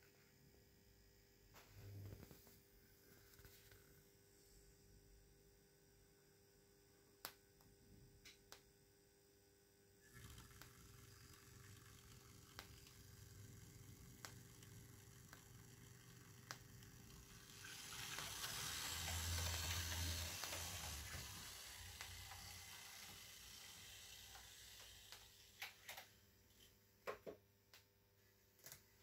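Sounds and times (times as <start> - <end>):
low hum: 10.0 - 26.6
faint steam hiss: 10.0 - 27.0.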